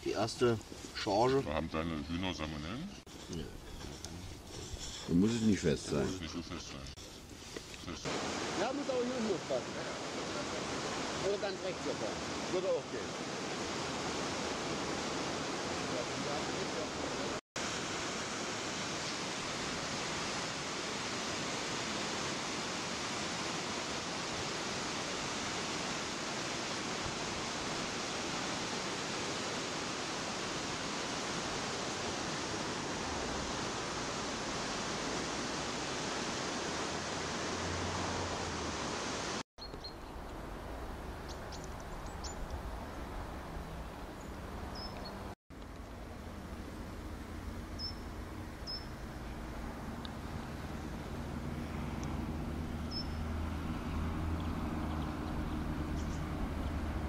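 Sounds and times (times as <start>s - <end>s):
river water rushing: 8.0s - 39.4s, 46.0s - 57.0s.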